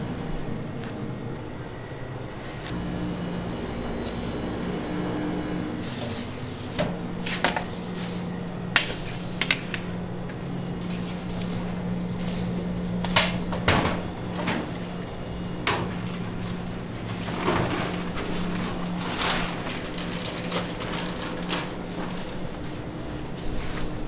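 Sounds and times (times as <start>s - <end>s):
low kitchen hum: 0.0s - 24.0s.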